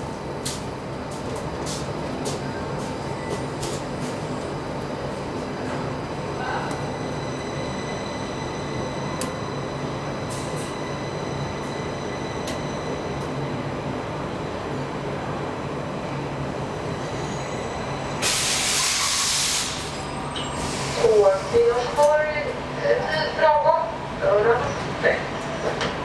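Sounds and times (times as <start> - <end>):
train equipment humming: 0.0 - 24.6
air hiss burst: 18.2 - 19.9.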